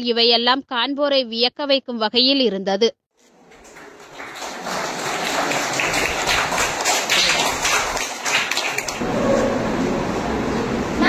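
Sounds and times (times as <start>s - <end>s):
people applauding: 3.2s - 9.5s.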